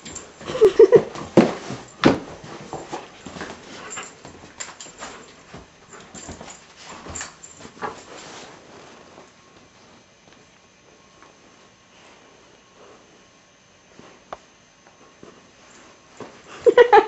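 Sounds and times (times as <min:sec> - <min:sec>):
puppy scuffling with toy: 0:00.0 - 0:10.1.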